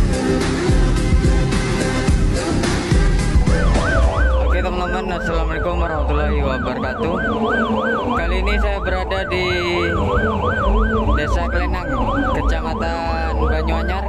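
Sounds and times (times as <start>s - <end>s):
deep bass thumping: 0.0s - 14.0s
police siren yelping: 2.9s - 14.0s.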